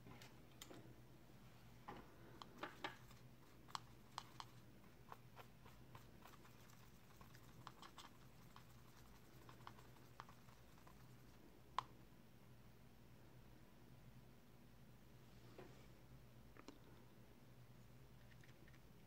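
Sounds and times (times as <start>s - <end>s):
paintbrush tapping palette: 2.4s - 11.9s.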